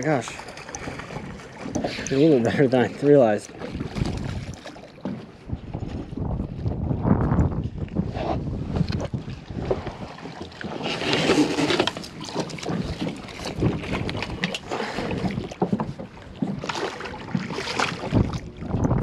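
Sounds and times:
wind on microphone: 3.6s - 4.7s, 5.3s - 10.2s, 12.7s - 16.0s, 17.2s - 19.0s
fish splashing in water: 16.6s - 18.4s.

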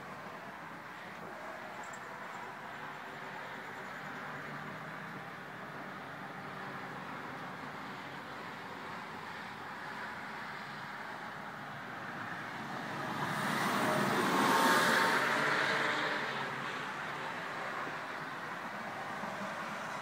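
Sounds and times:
road vehicle passing: 11.8s - 20.0s.

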